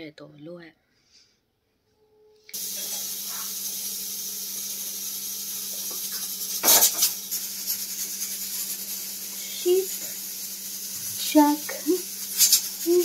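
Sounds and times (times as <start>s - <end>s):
gas stove burner hissing: 2.5s - 13.0s.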